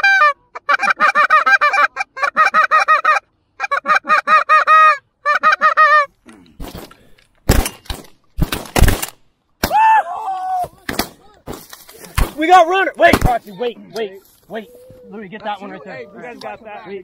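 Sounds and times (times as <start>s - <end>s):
geese honking and clucking: 0.0s - 6.1s, 13.3s - 17.0s
shotgun shots: 7.5s - 9.2s.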